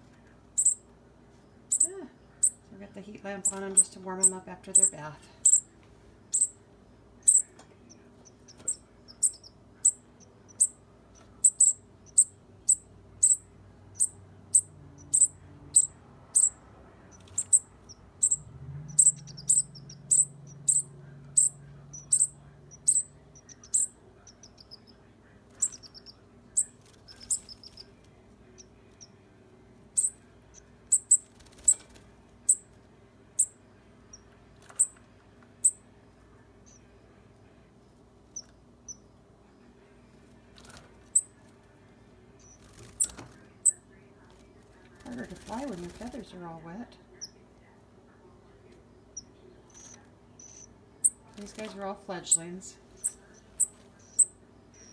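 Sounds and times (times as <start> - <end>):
fledgling birds chirping: 0.1 - 47.5, 48.2 - 54.9
bird trill: 0.6 - 0.8, 3.4 - 5.7, 6.3 - 6.6, 7.2 - 7.5, 8.7 - 10.8, 11.4 - 16.6, 17.2 - 24.9, 30.0 - 30.2, 30.9 - 31.3.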